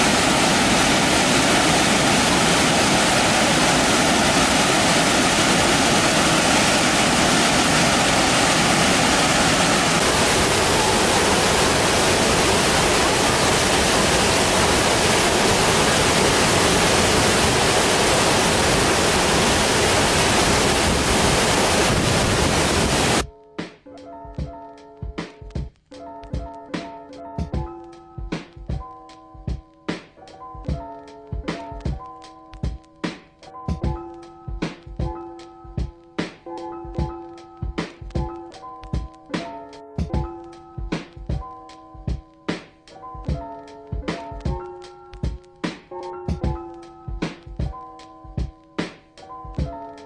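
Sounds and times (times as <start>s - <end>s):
waterfall rushing: 0.0s - 23.2s.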